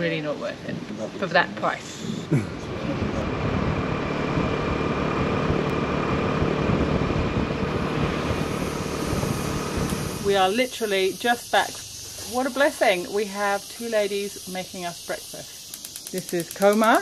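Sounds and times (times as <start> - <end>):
road noise: 0.0 - 12.5
motor scooter engine: 2.6 - 10.4.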